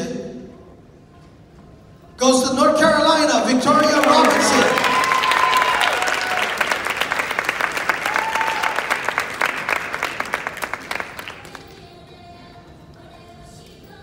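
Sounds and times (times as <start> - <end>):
audience applauding: 3.8 - 11.7.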